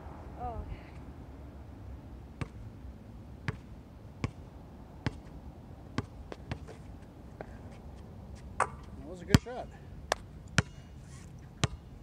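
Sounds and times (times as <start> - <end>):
basketball bouncing on hard court: 10.1 - 10.7.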